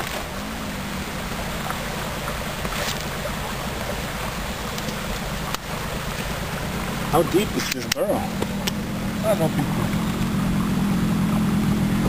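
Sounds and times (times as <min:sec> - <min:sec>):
soil scooped by hand: 0:00.0 - 0:03.8
outdoor rushing noise: 0:00.0 - 0:12.0.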